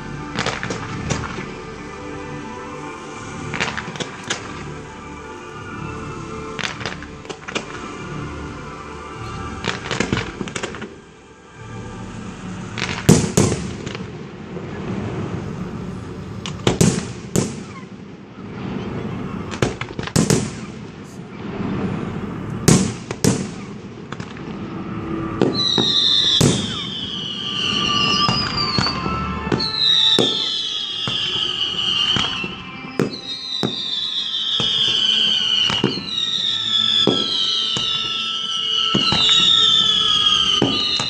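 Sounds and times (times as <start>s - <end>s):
fireworks crackle: 0.0s - 41.0s
falling firework whistles: 2.8s - 5.0s, 12.0s - 41.0s.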